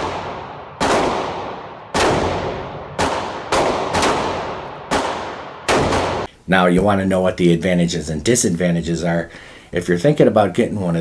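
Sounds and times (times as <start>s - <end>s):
revolver gunshots echoing: 0.0s - 6.3s.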